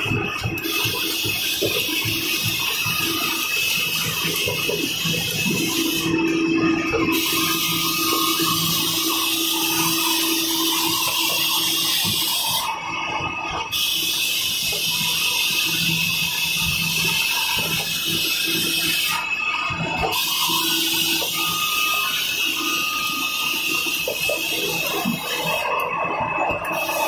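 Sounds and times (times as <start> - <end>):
low motor hum: 0.0 - 13.5
machine hissing: 0.0 - 27.0.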